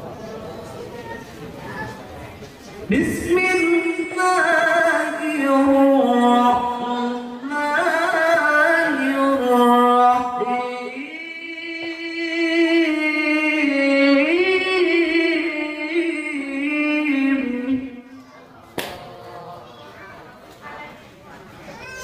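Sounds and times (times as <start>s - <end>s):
man reciting melodically into microphone: 2.8s - 18.1s.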